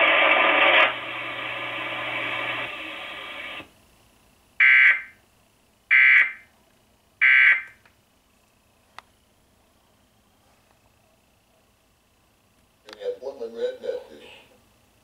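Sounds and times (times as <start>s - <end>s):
television programme sound: 12.8s - 14.6s.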